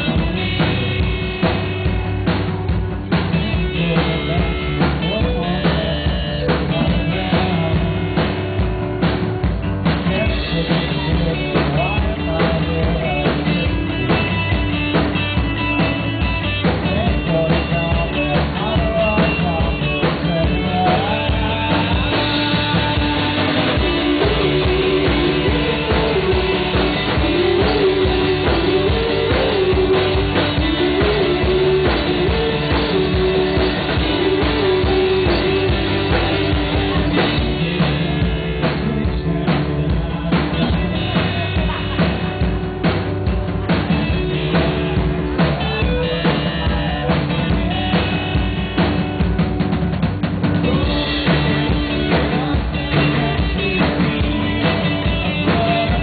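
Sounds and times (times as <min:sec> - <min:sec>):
live rock band playing: 0:00.0 - 0:56.0
wavering melody line: 0:20.4 - 0:39.2.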